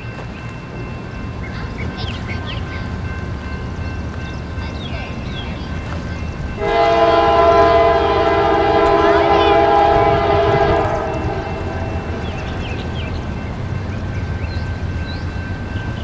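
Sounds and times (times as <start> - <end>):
train rumble: 0.0 - 16.0
locomotive air horn: 6.6 - 12.6.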